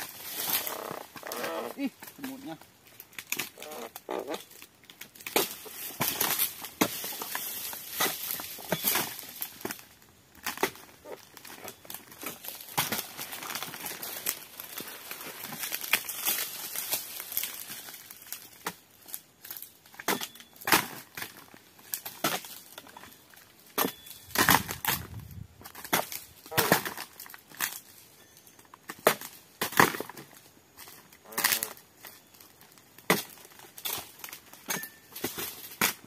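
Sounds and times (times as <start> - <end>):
footsteps crunching dry leaves: 0.0 - 2.8, 3.5 - 10.1, 10.7 - 19.8.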